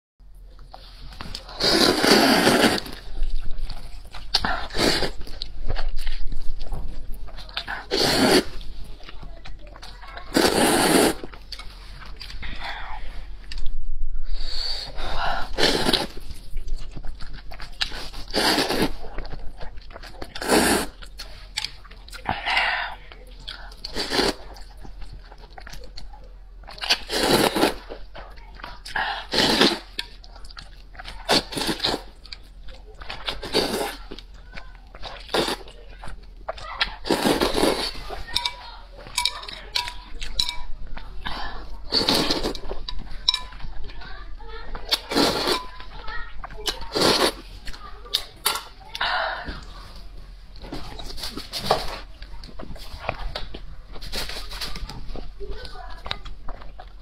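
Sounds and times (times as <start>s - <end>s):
wet chewing: 0.4s - 13.8s, 14.5s - 57.0s
noodles being slurped: 0.8s - 6.7s, 7.4s - 13.0s, 14.6s - 26.0s, 26.6s - 50.1s
slurping noodles: 1.3s - 3.3s, 4.4s - 5.4s, 7.6s - 8.8s, 10.2s - 11.9s, 14.4s - 16.5s, 17.7s - 19.1s, 19.9s - 21.3s, 23.6s - 24.7s, 26.8s - 27.9s, 28.8s - 30.1s, 31.0s - 32.2s, 33.2s - 34.2s, 35.0s - 35.8s, 36.9s - 38.3s, 41.2s - 42.8s, 44.9s - 45.6s, 46.8s - 47.6s.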